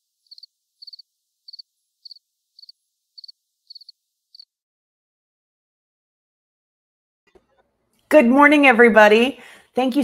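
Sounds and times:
cricket chirping: 0.0s - 4.5s.

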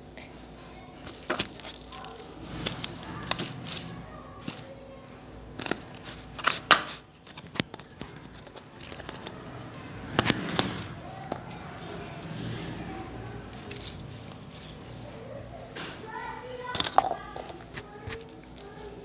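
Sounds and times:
slime squishing: 0.7s - 19.0s
slime popping and crackling: 1.1s - 3.9s, 7.6s - 15.0s.

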